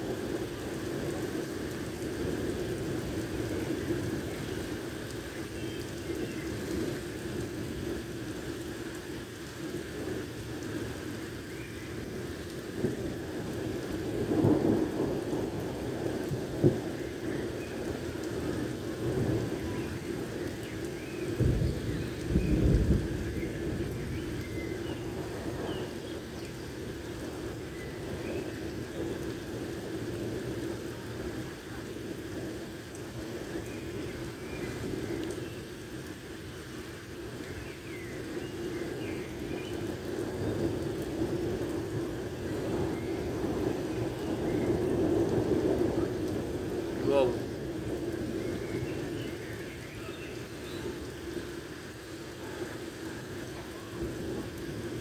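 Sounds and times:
heavy rain on a street: 0.0 - 55.0
thunder rumbling: 6.1 - 36.4, 38.2 - 55.0.

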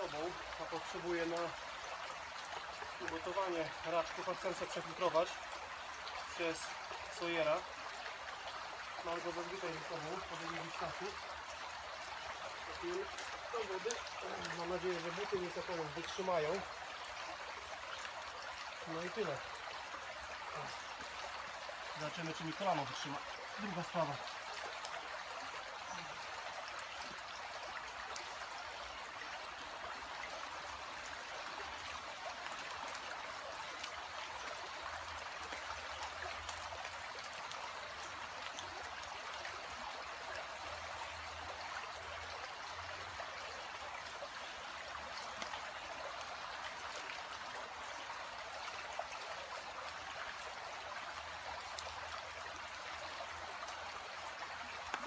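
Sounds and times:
shallow stream running: 0.0 - 55.0.

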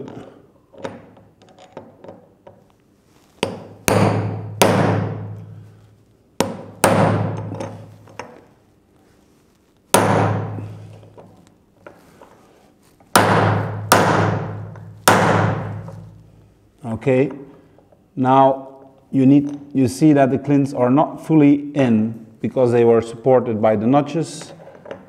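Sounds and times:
hammer striking metal tool: 3.4 - 5.4, 10.0 - 10.7, 13.2 - 16.0.

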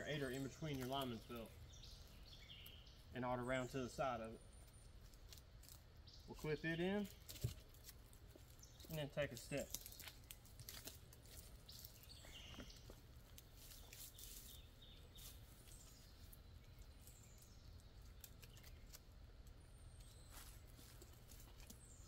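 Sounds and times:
faint clicks and rustles: 7.0 - 22.0.

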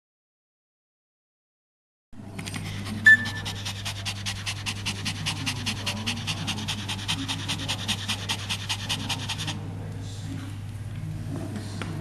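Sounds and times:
dog panting rapidly: 2.5 - 9.6
high-pitched squeak: 3.0 - 3.5.

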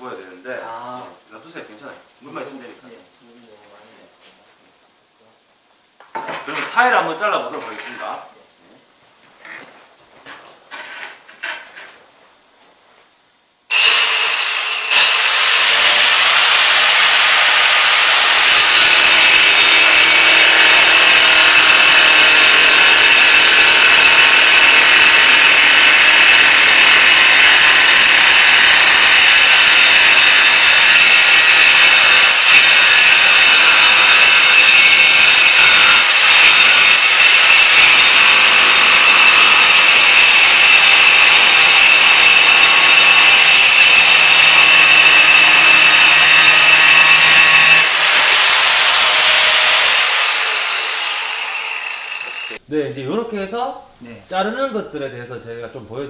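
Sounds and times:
angle grinder cutting tile: 13.7 - 52.6.

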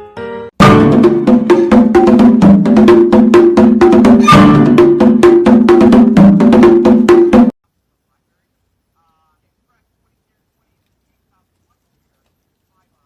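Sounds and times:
music with fast percussive beat: 0.6 - 7.6.

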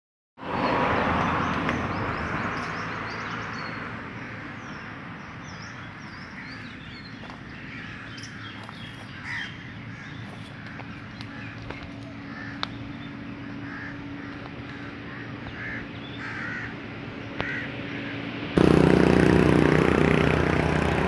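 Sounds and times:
birds chirping: 0.5 - 21.0
rush of noise: 12.2 - 21.0.

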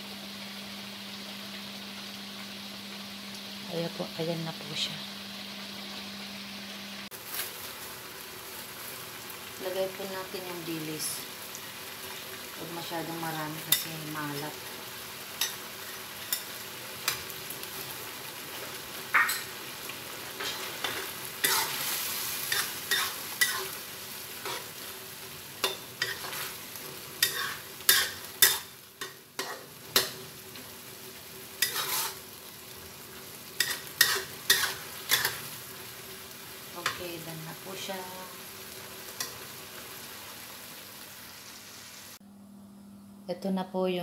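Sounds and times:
sauce sizzling in a pan: 0.0 - 42.2
metal spatula scraping a pan: 20.4 - 23.8, 24.4 - 24.9, 25.6 - 26.6, 27.2 - 30.2, 31.6 - 32.3, 33.6 - 35.5.

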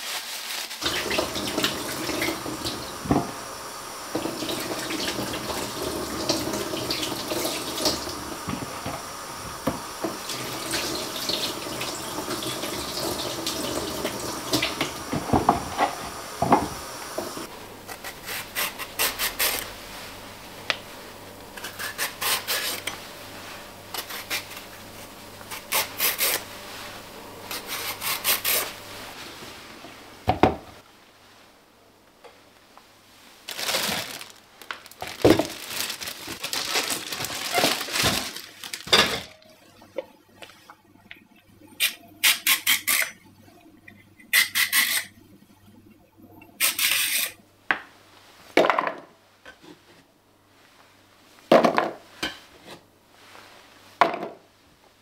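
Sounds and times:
vegetable peeler scraping potatoes: 17.8 - 19.7, 21.6 - 23.0, 23.9 - 26.4, 27.5 - 28.8, 41.8 - 43.2, 44.3 - 45.1, 46.6 - 47.4
potatoes rubbed in plastic bowl: 33.5 - 38.8.

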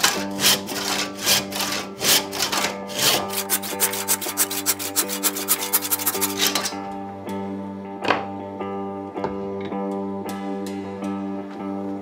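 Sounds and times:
handsaw cutting wood: 0.0 - 6.7.

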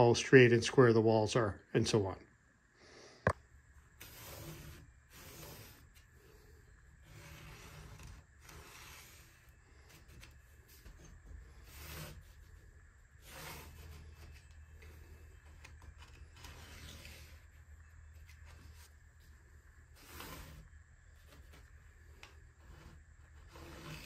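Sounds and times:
steady low hum: 0.0 - 24.0
pencil scratching on paper: 7.0 - 15.2.

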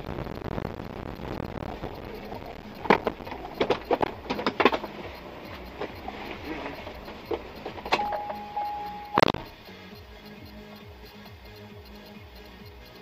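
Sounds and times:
car rolling over dirt road: 1.7 - 8.7.

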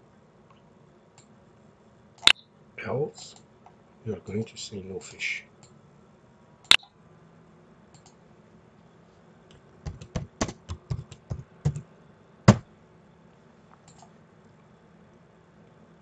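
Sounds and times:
typing on computer keyboard: 9.8 - 11.8.

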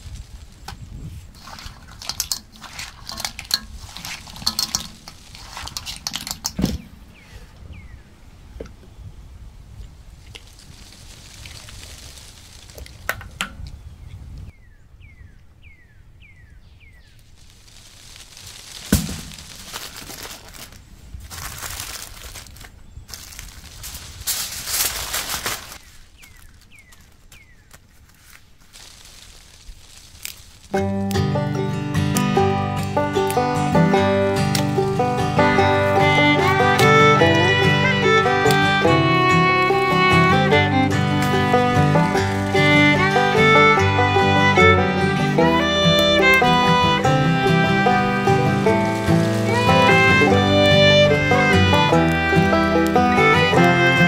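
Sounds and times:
aluminium foil crinkling: 0.0 - 6.6, 10.2 - 13.1, 17.3 - 31.0, 34.3 - 54.0
shells clinking against metal pan: 2.0 - 6.5
dull thump: 6.5 - 7.0, 18.8 - 19.8.

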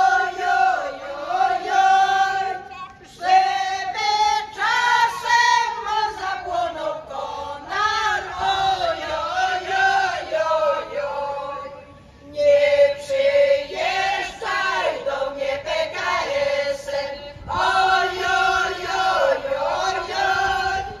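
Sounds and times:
women's choir singing: 0.0 - 21.0.

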